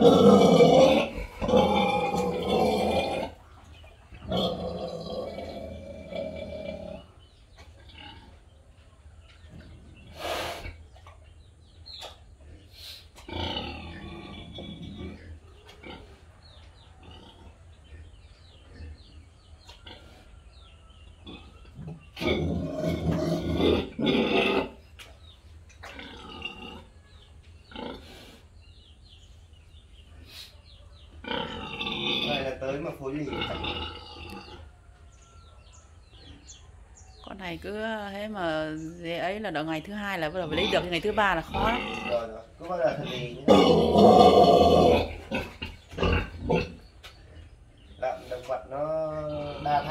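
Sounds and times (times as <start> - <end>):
pig grunting: 0.0 - 3.4, 4.1 - 8.4, 12.0 - 24.8, 25.8 - 27.0, 27.6 - 28.9, 31.2 - 34.8, 40.4 - 49.9.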